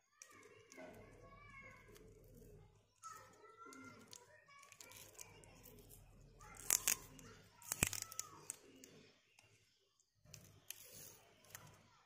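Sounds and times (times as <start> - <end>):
sharp clicks with crinkling: 3.0 - 9.5.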